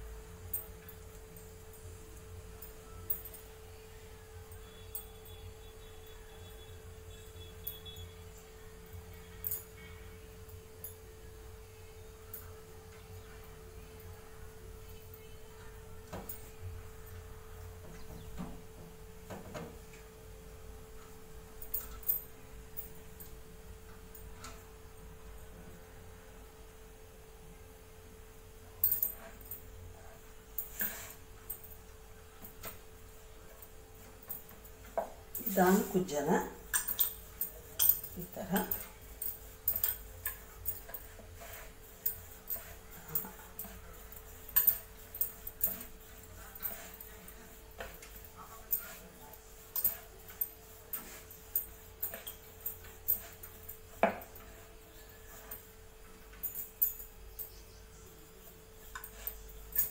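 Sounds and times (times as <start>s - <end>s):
faint steady hum: 0.0s - 59.9s
bangles clinking: 0.4s - 8.5s, 9.2s - 11.1s, 21.5s - 23.4s, 28.7s - 59.9s.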